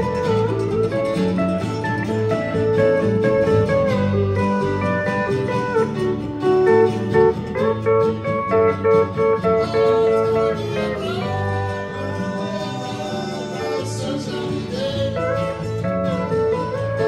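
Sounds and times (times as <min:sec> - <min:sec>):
country rock band playing: 0:00.0 - 0:17.0
steel guitar gliding notes: 0:00.0 - 0:17.0.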